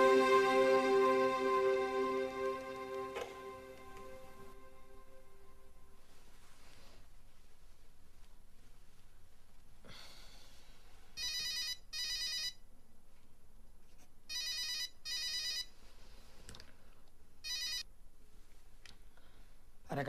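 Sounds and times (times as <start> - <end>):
cordless phone ringing: 11.2 - 12.6, 14.3 - 15.7, 17.4 - 17.8.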